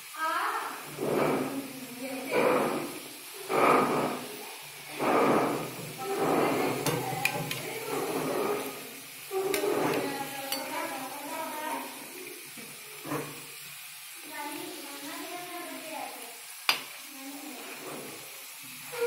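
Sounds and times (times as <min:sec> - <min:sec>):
frying in hot oil: 0:00.0 - 0:19.0
murmur of voices: 0:00.9 - 0:12.6.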